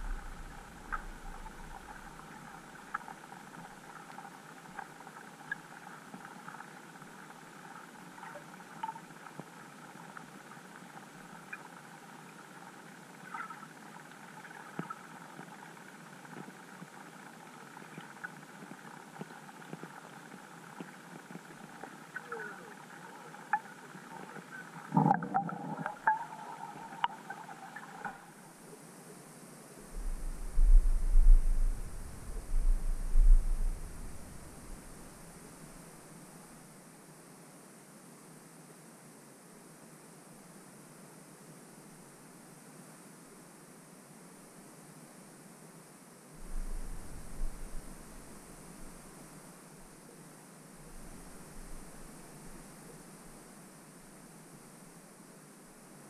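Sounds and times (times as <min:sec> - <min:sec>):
underwater crackle of small clicks: 0:00.0 - 0:28.3.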